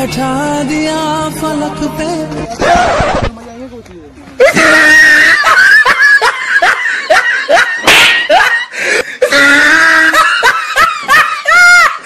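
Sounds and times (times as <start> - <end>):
high-pitched laughter: 4.4 - 12.0.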